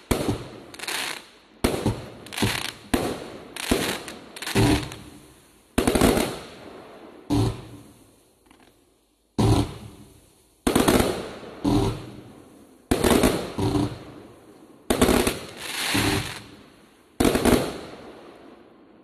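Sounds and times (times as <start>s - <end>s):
firework bangs with crackle: 0.0s - 8.0s, 9.4s - 12.3s, 12.9s - 14.2s, 14.9s - 16.6s, 17.2s - 18.4s.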